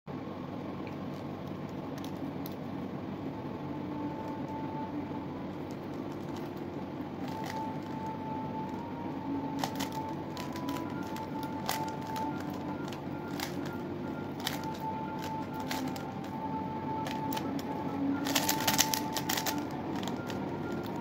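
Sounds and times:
room hum: 0.1 - 21.0
puzzle cube clicks: 9.5 - 16.4, 17.0 - 21.0.

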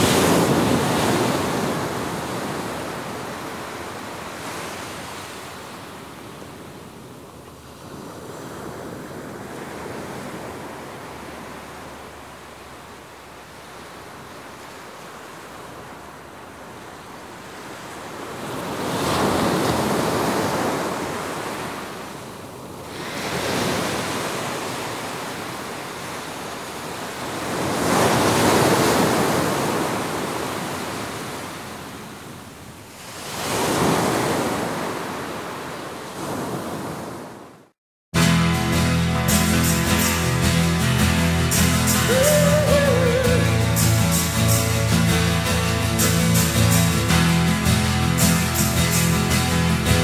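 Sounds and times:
waves breaking on a beach: 0.0 - 37.8, 38.8 - 50.0.

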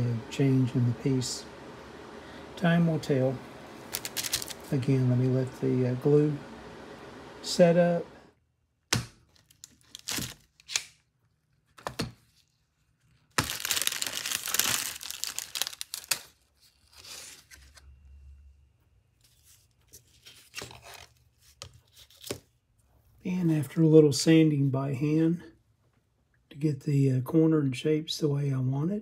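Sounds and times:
plastic wrap crinkling tear: 3.8 - 4.8, 9.3 - 11.1, 13.1 - 17.8
small handling sounds: 3.8 - 4.8, 9.2 - 18.1, 19.1 - 23.7.

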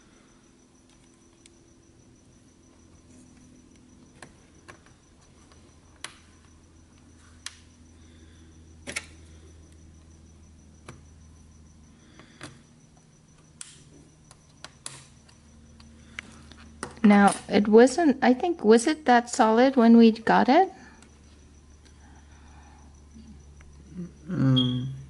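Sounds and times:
small clicks and taps: 13.3 - 17.0.

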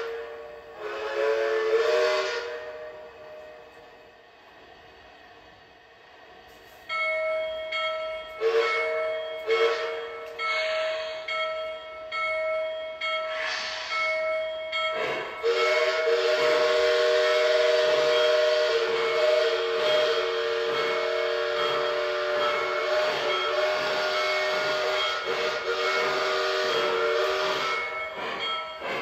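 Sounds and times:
steam hiss: 0.0 - 3.2, 10.5 - 11.4, 13.0 - 29.0
multi-note train whistle: 0.0 - 4.0, 8.3 - 11.3, 15.0 - 29.0.

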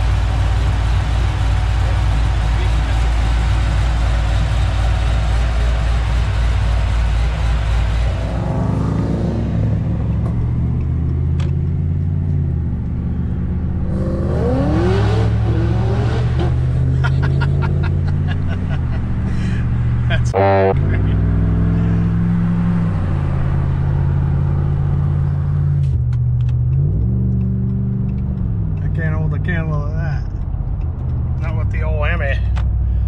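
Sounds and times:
car engine idling: 0.0 - 8.8, 16.5 - 26.8
low engine drone inside car: 16.5 - 21.2.

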